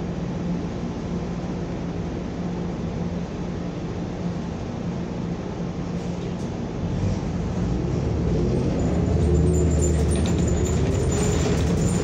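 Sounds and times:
bus engine accelerating: 0:00.1 - 0:12.0
road noise: 0:03.0 - 0:12.0.

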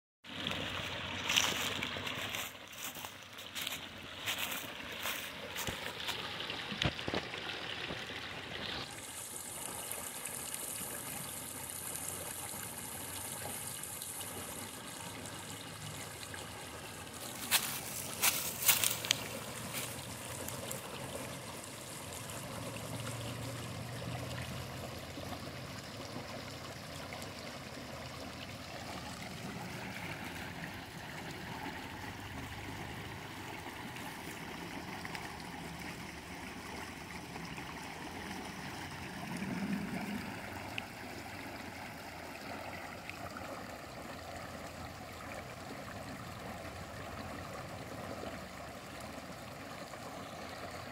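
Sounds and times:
creek water trickling over stones: 0:00.2 - 0:50.9
water splashing down a slide: 0:05.2 - 0:11.1.

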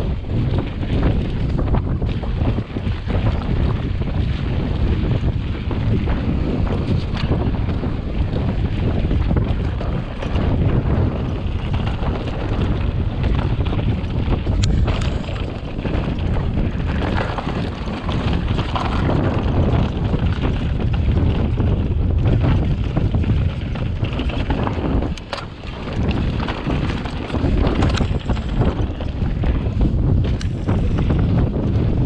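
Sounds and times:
bike knocks and rattles: 0:00.0 - 0:32.0
wind on microphone: 0:00.0 - 0:32.0
tyres crunching over gravel: 0:09.2 - 0:31.1.

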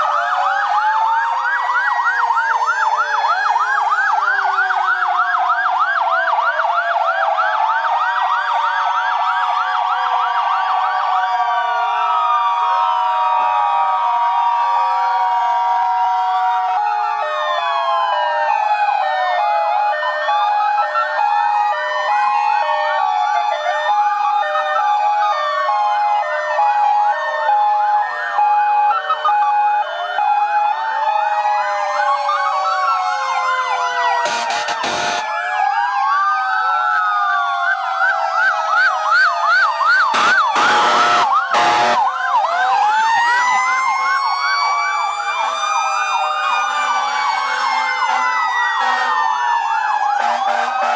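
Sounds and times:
emergency sirens wailing: 0:00.0 - 0:50.9.

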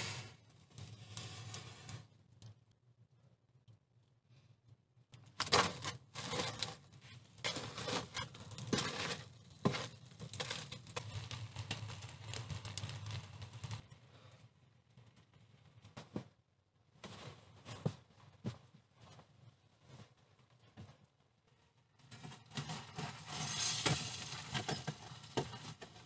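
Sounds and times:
embers crackling in stove: 0:00.0 - 0:26.0
firewood clattering and scraping: 0:05.4 - 0:13.8, 0:22.1 - 0:26.0.

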